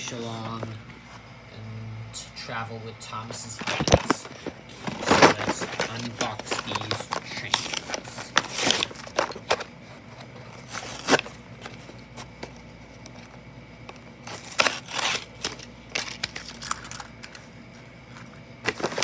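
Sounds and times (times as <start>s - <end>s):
plastic packaging crinkling: 3.6s - 17.5s, 18.1s - 19.0s.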